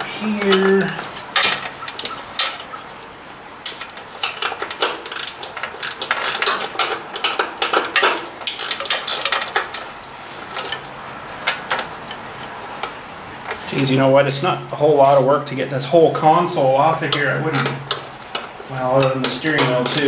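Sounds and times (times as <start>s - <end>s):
wrench clicking on metal nuts: 0.5s - 2.8s, 3.6s - 9.8s, 14.3s - 15.3s, 17.1s - 20.0s.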